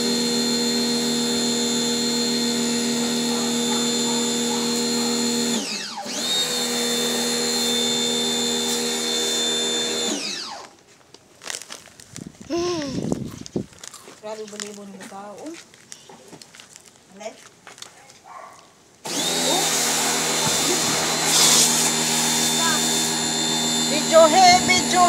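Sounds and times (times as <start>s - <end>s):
pressure washer motor whining: 0.0s - 10.8s, 19.0s - 25.0s.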